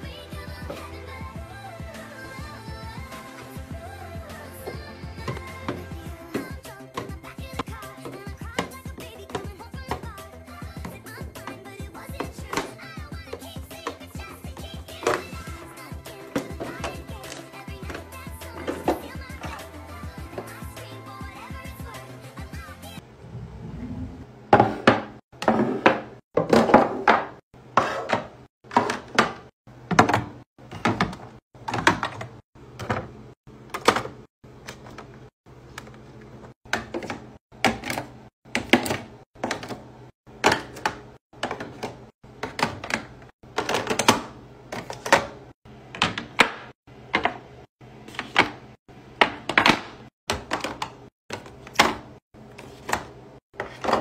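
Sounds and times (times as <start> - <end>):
plastic bottles clacking into drawers: 15.0 - 15.5, 24.6 - 35.1, 36.7 - 47.4, 48.1 - 54.0.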